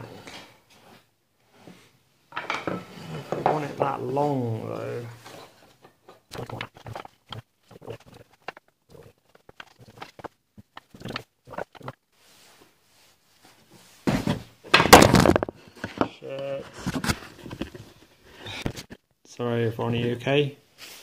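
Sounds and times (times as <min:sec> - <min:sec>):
wood pieces knocking and clicking: 0:08.2 - 0:11.3, 0:14.3 - 0:16.1.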